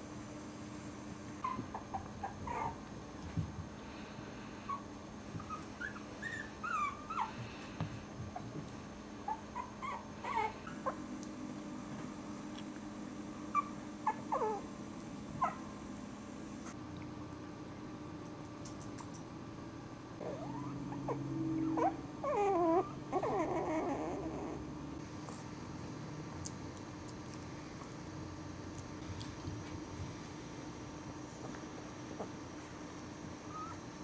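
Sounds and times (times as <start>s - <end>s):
puppies whimpering and yipping: 1.4s - 2.8s, 4.7s - 7.5s, 9.2s - 11.0s, 13.5s - 14.7s, 20.2s - 24.7s, 33.5s - 33.8s
soft bumps of puppies tumbling: 1.4s - 3.8s.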